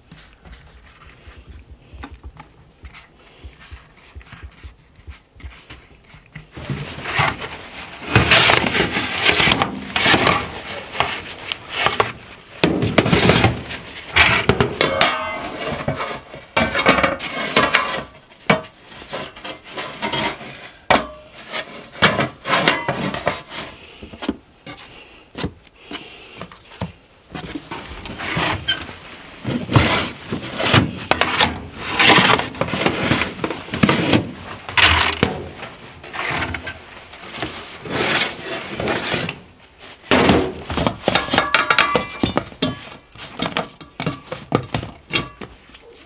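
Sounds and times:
rubbing and knocking on wood: 0.0 - 15.1.

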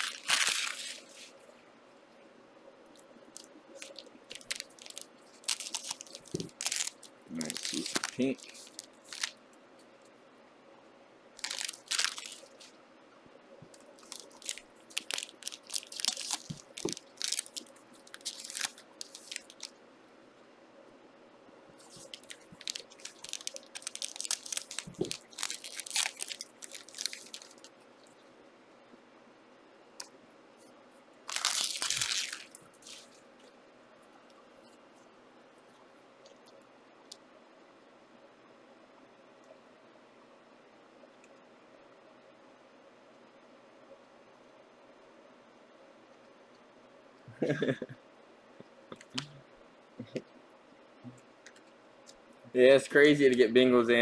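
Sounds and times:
card wrappers crinkling and tearing: 0.0 - 1.3, 3.4 - 9.4, 11.4 - 12.7, 13.8 - 19.7, 21.8 - 27.7, 31.3 - 33.2.

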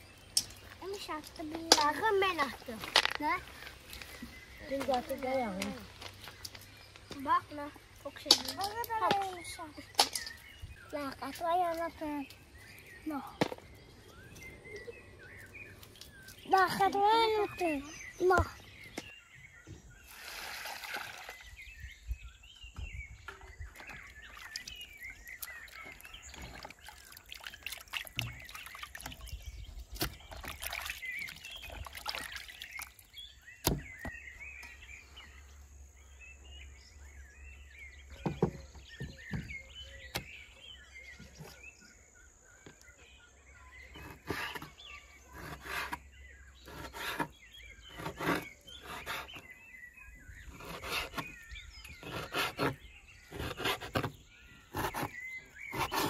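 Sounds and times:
small birds chirping: 0.0 - 56.0
water splashing in a basin: 20.1 - 21.5, 23.7 - 29.4, 30.0 - 33.2.

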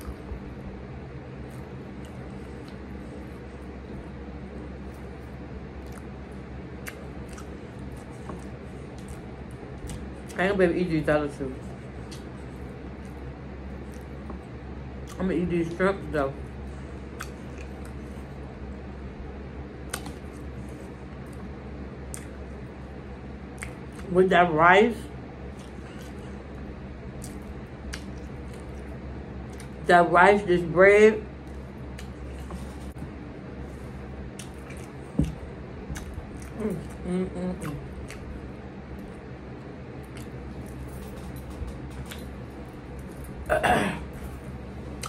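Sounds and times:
steady low hum: 0.0 - 45.0
person chewing food: 1.3 - 10.4, 11.6 - 15.2, 16.6 - 18.7, 19.8 - 24.1, 25.4 - 29.8, 31.5 - 39.3, 39.9 - 43.5
person humming: 36.5 - 37.9.

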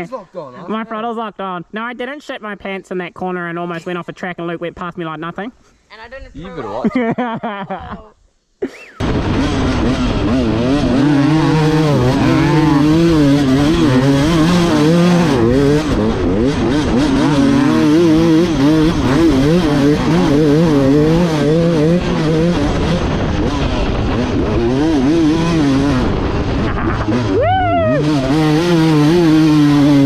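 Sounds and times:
dirt bike engine revving: 9.0 - 30.0.

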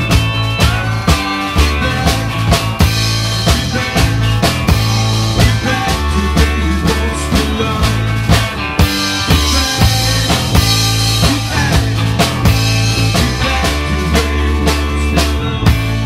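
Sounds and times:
rock band music: 0.0 - 16.0
steady drum beat: 0.0 - 16.0
sustained bass line: 0.0 - 16.0.

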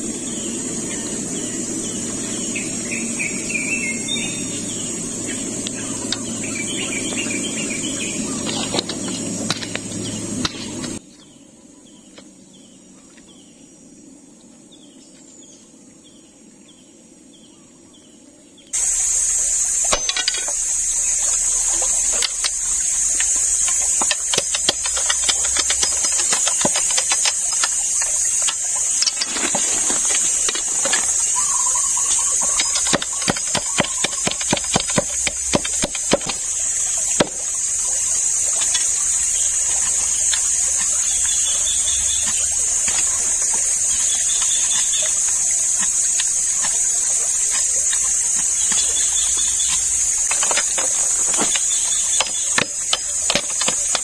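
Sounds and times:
bird chirps: 0.0 - 11.0, 18.8 - 46.3, 47.8 - 50.6
high insect buzz: 0.0 - 11.9, 12.5 - 54.0
knife striking a log: 19.8 - 20.6, 23.6 - 31.1, 32.6 - 36.5, 37.1 - 37.5
sharp clicks and knocks: 22.1 - 31.4, 32.1 - 36.5.

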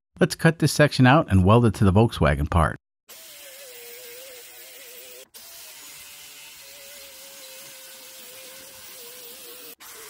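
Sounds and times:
angle grinder cutting steel: 3.1 - 10.0.

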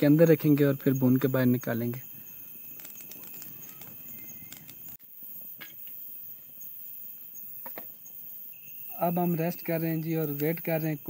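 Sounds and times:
crickets chirping: 0.0 - 11.0
wood fire crackling: 2.6 - 5.0.

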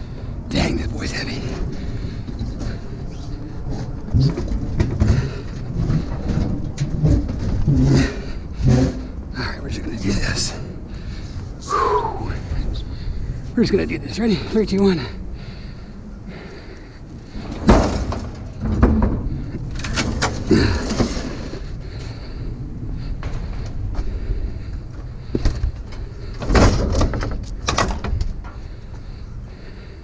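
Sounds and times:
refrigerator scraping and clunking: 0.6 - 10.4, 17.3 - 22.2.

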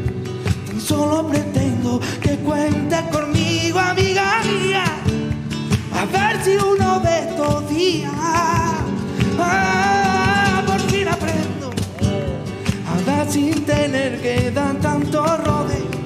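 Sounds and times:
acoustic guitars: 0.0 - 16.0
hand-clapping: 0.0 - 16.0
man singing: 0.5 - 16.0.

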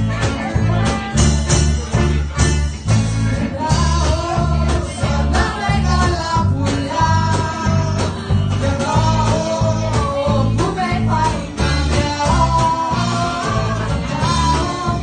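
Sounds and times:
live band playing: 0.0 - 15.0
woman singing: 3.4 - 15.0.

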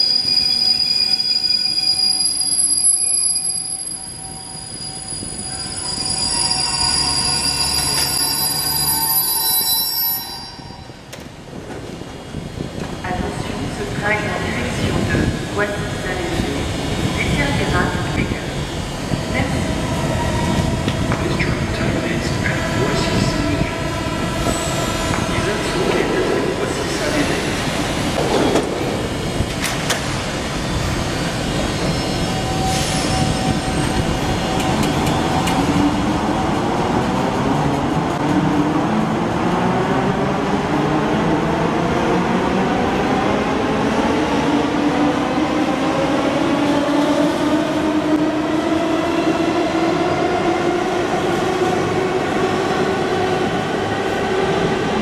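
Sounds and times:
train knocks and clatters: 11.0 - 39.1.

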